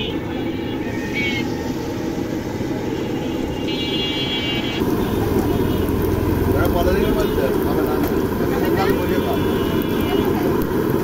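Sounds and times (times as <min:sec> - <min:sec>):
traffic rumble: 0:00.0 - 0:11.0
voices: 0:04.8 - 0:11.0.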